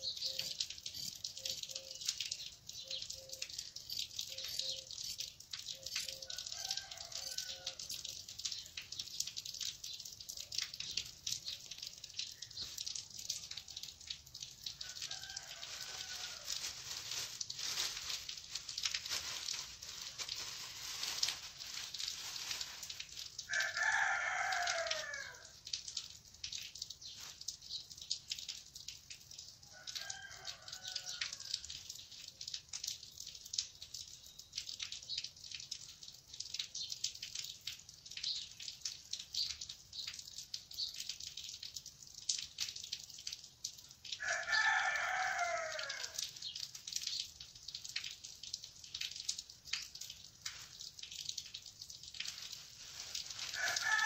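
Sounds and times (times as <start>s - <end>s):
rooster crowing: 6.1s - 7.9s, 14.8s - 16.6s, 23.5s - 25.5s, 29.7s - 31.6s, 44.2s - 46.2s, 53.5s - 54.0s.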